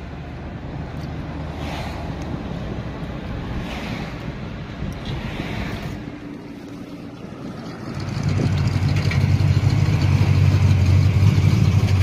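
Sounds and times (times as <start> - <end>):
wind and road noise: 0.0 - 12.0
pickup truck exhaust rumble: 4.8 - 12.0.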